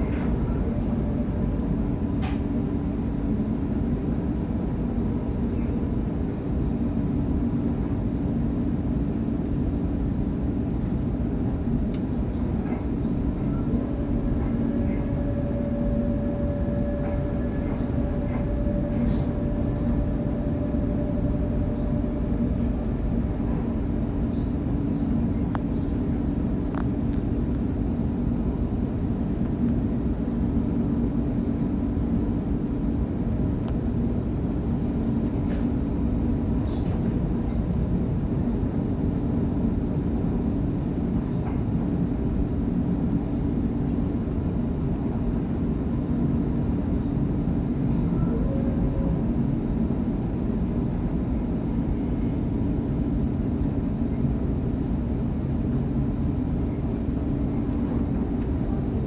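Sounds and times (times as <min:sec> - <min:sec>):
train rumbling with low hum: 0:00.0 - 0:59.0
faint high whine: 0:13.3 - 0:26.0.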